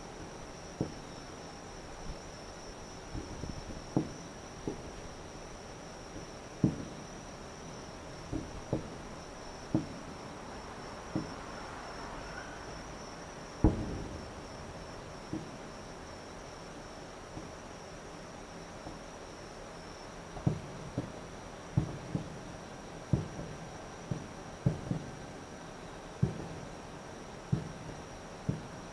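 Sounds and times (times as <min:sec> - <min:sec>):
insect chirr: 0:00.0 - 0:28.9
distant firework booms: 0:03.1 - 0:05.0, 0:06.2 - 0:07.2, 0:08.2 - 0:10.2, 0:13.6 - 0:15.7, 0:20.4 - 0:22.4.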